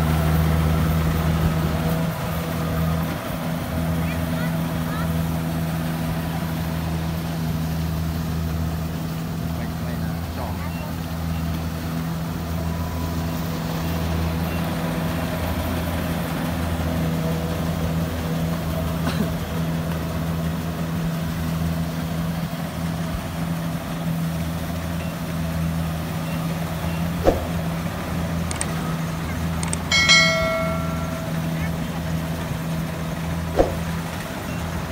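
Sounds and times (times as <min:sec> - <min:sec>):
diesel engine running: 0:00.0 - 0:34.9
bell-like chime: 0:29.9 - 0:31.7.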